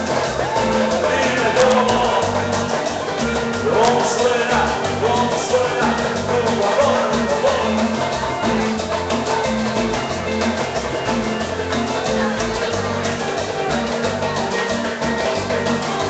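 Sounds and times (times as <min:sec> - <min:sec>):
bass line: 0:00.0 - 0:16.0
live band playing latin dance music: 0:00.0 - 0:16.0
percussion: 0:00.0 - 0:16.0
person singing: 0:00.4 - 0:08.8.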